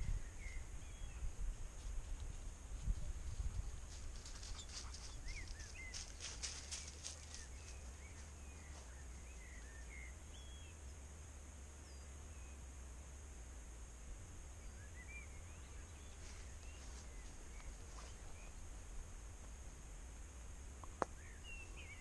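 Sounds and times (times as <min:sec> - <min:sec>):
small birds chirping: 0:00.0 - 0:01.9, 0:02.9 - 0:11.0, 0:14.6 - 0:19.0, 0:20.8 - 0:22.0
faint steady hiss: 0:00.0 - 0:22.0.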